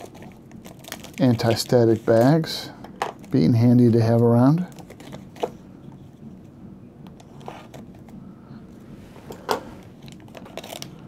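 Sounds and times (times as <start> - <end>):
plastic bag crinkling: 0.0 - 2.6, 9.9 - 11.0.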